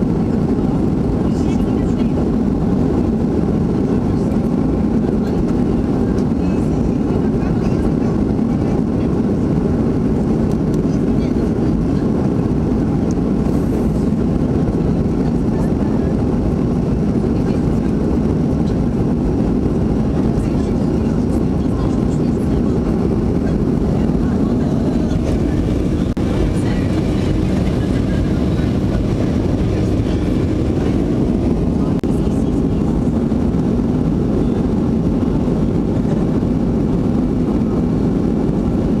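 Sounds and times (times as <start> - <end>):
airflow over fuselage: 0.0 - 39.0
jet engines in airplane cabin: 0.0 - 39.0.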